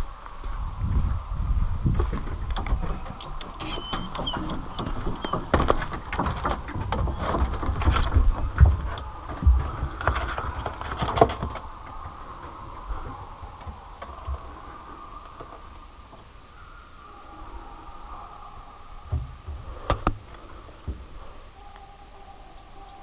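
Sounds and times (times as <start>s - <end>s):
wind rumbling on microphone: 0.0s - 23.0s
truck rattles and knocks: 2.0s - 12.1s.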